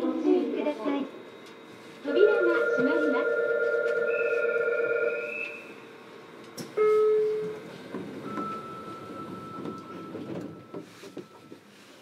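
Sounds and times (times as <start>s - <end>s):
train doors sliding shut: 7.4s - 11.7s.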